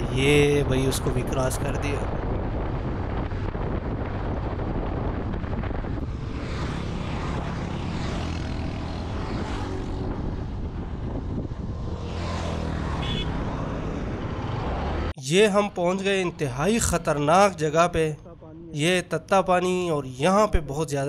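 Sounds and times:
wind rushing over microphone: 0:00.0 - 0:15.1.

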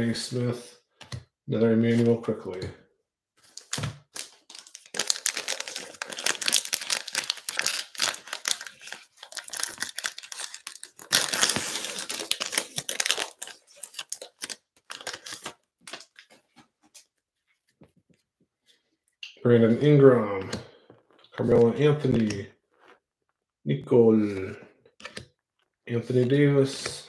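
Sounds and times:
plastic wrapper crinkling: 0:03.5 - 0:16.4.

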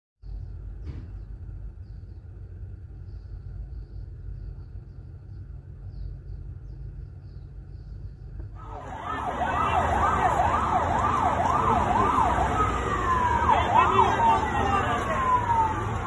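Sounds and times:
low street rumble: 0:00.2 - 0:16.0
police siren wailing: 0:08.6 - 0:16.0.

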